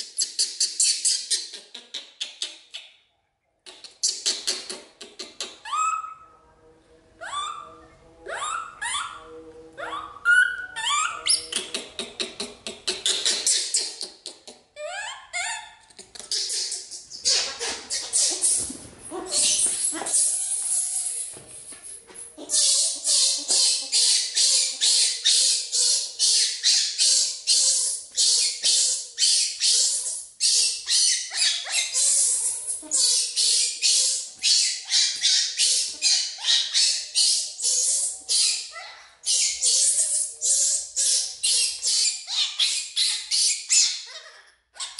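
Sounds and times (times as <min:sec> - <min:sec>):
baby monkey squealing: 0:05.6 - 0:06.3, 0:08.3 - 0:14.0, 0:14.8 - 0:21.3, 0:22.4 - 0:44.9.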